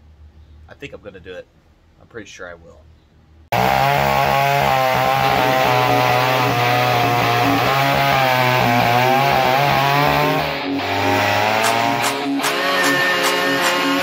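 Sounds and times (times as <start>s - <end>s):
chainsaw cutting log: 3.5s - 14.0s.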